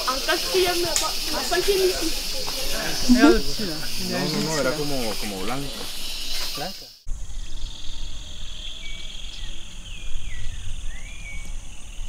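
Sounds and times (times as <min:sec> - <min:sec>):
insects chirring: 0:00.0 - 0:12.0
wind rumble on microphone: 0:07.1 - 0:12.0.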